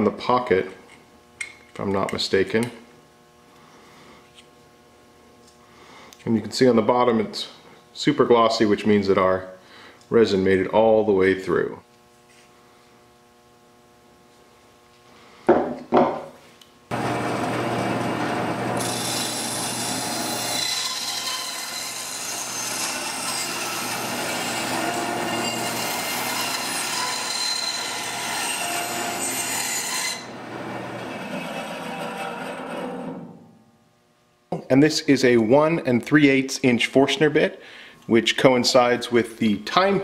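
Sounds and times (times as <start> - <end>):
band saw cutting: 16.9 - 33.4
saw motor hum: 16.9 - 33.4.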